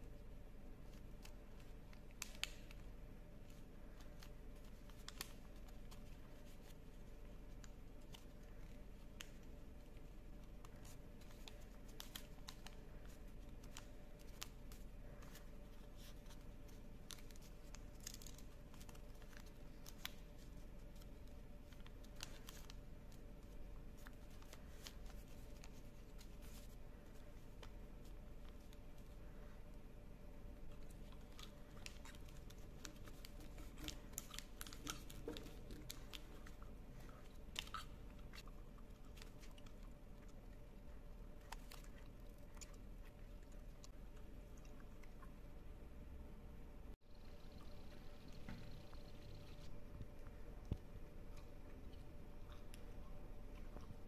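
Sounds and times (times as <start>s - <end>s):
low steady hum: 0.0s - 54.0s
paper crinkling and rustling: 3.4s - 29.5s, 30.6s - 39.9s.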